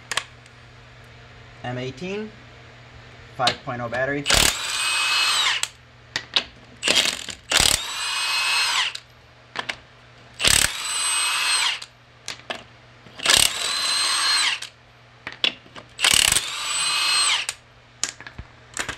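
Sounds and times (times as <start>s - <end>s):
impact wrench on lug nuts: 4.3s - 5.7s, 6.8s - 9.0s, 10.4s - 11.9s, 13.2s - 14.7s, 16.0s - 17.6s.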